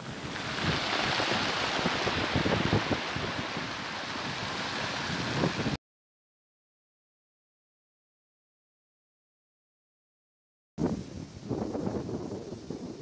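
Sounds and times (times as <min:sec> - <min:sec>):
surf washing over pebbles: 0:00.0 - 0:05.8
wind buffeting microphone: 0:00.0 - 0:05.8, 0:10.8 - 0:13.0.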